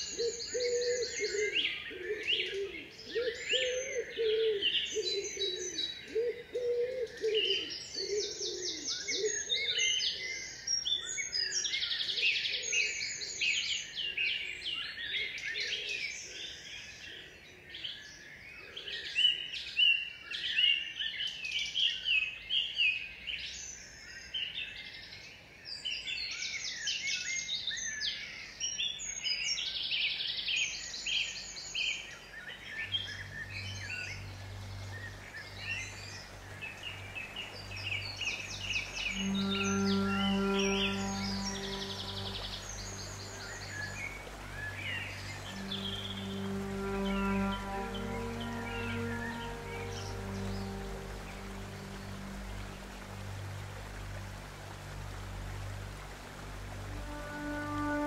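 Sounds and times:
songbirds chirping and trilling: 0:00.0 - 0:58.0
low wavering bird call: 0:32.5 - 0:58.0.

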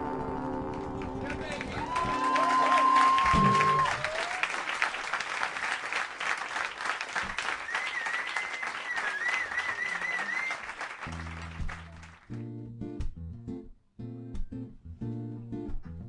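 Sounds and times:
audience applauding: 0:00.4 - 0:12.4.

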